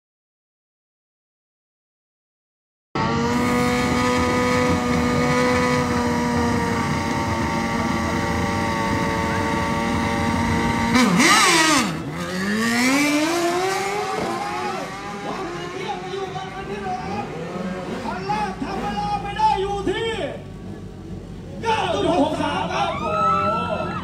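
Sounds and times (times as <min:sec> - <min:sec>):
motorcycle engine revving: 0:03.0 - 0:19.2.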